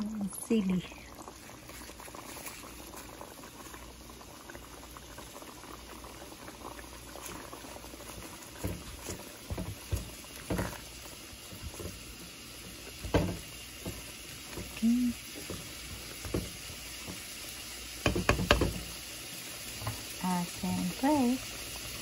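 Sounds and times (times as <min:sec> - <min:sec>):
broth bubbling in a pot: 0:00.0 - 0:22.0
spatula knocking against pot: 0:18.0 - 0:18.8.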